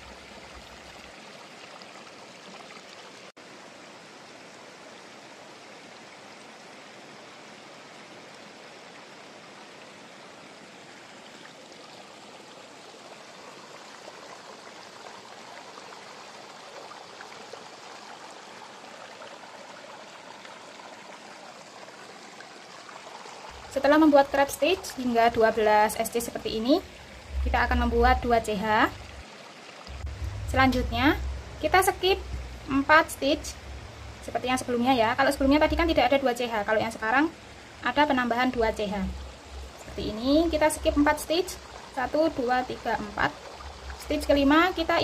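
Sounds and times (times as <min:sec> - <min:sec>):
steady background hiss: 0:03.4 - 0:45.0.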